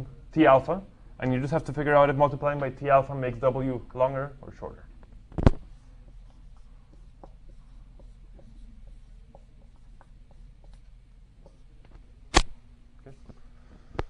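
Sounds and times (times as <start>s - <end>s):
writing taps and scratches on board: 5.4s - 11.9s.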